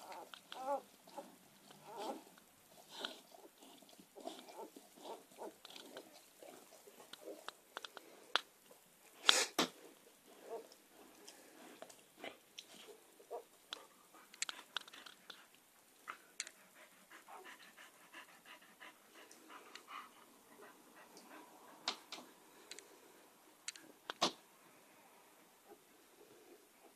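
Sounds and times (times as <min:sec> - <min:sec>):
small clicks and rustles: 0:00.0 - 0:08.8, 0:13.7 - 0:16.6
dog panting: 0:13.3 - 0:22.1.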